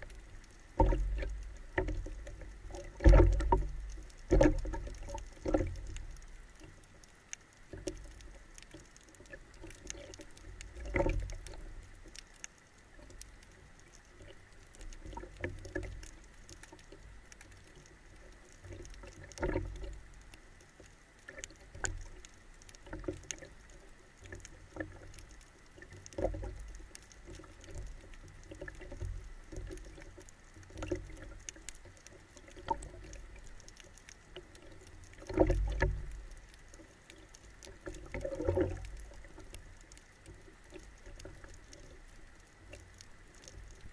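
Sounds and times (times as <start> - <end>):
faint steady whine: 0.0 - 43.9
small clicks and crackles: 0.0 - 43.9
underwater sloshing thumps: 0.8 - 6.0.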